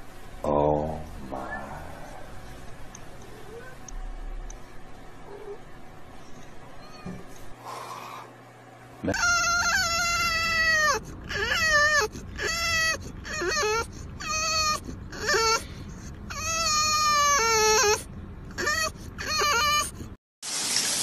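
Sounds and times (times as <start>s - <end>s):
dog whining and howling: 9.1s - 20.1s.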